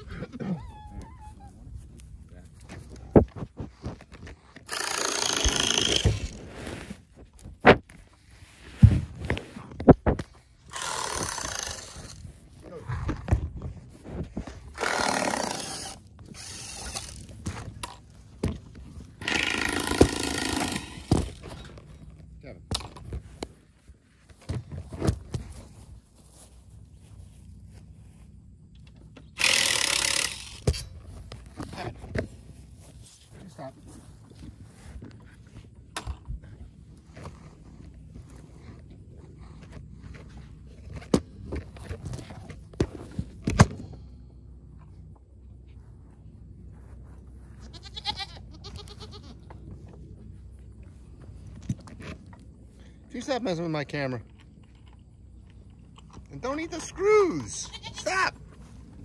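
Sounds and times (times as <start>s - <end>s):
power drill driving screw: 4.6s - 6.5s, 10.7s - 12.2s, 14.8s - 17.3s, 19.2s - 21.4s, 29.4s - 30.8s
handling knocks and clatter: 20.0s - 23.6s
goat bleating: 47.5s - 49.6s, 57.3s - 58.4s.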